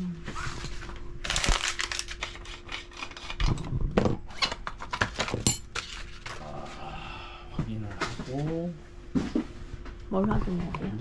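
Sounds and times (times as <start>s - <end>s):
packaging rubbing and scraping: 0.3s - 3.6s.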